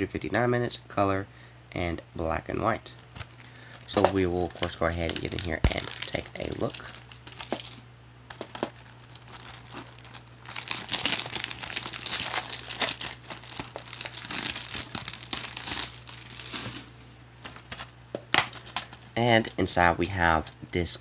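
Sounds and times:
plastic wrap scratching: 3.0s - 17.0s
plastic wrap crinkling: 3.0s - 19.0s.

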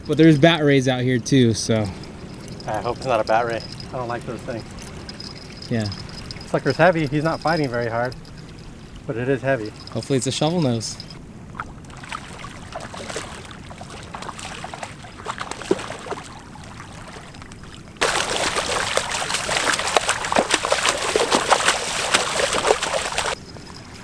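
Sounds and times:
water splashing from thrashing fish: 11.6s - 23.4s.

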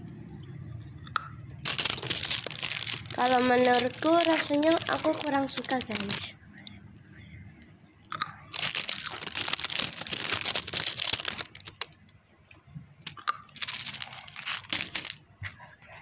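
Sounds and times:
plastic wrappers crinkling: 1.6s - 6.3s, 8.3s - 12.1s, 13.0s - 15.2s.

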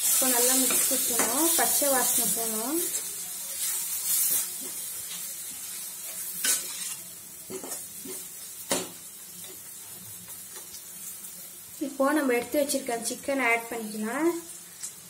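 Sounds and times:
masala sizzling in a pan: 0.0s - 15.0s
spatula scraping metal pan: 6.4s - 7.8s.

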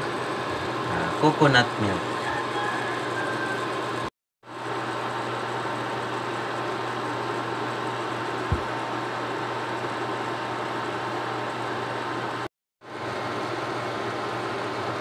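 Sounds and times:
electric cooktop hum and hiss: 0.0s - 15.0s
dull thump: 8.5s - 8.7s.

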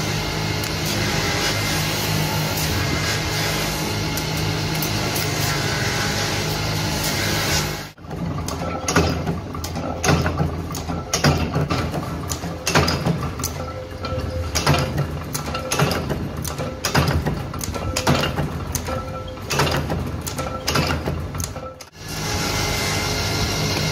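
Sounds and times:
grinding wheel grinding steel: 0.0s - 8.9s
metallic clanks and clicks: 8.0s - 22.0s.

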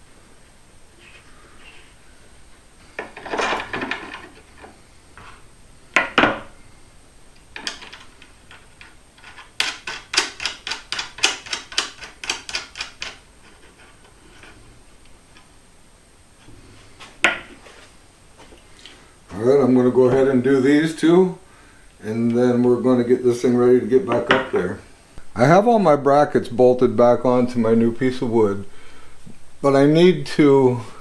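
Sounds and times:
scraping rustle: 16.4s - 19.1s.

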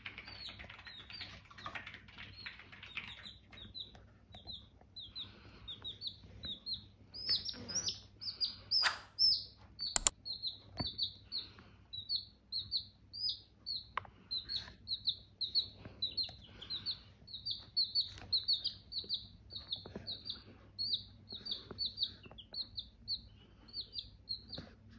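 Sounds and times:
chicks peeping: 0.0s - 24.9s
sharp clicks: 9.9s - 10.1s.

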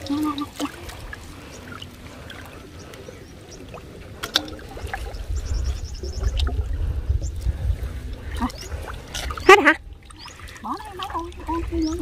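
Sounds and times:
shallow water splashing: 0.0s - 12.0s
low rumble: 4.6s - 10.2s.

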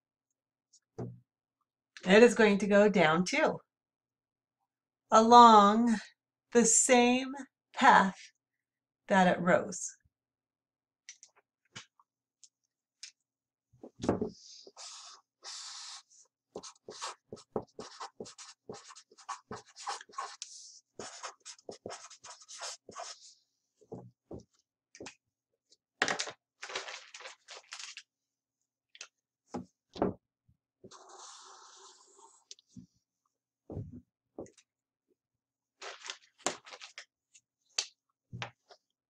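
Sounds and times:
marker scratching on paper: 14.3s - 23.3s, 30.9s - 32.5s.

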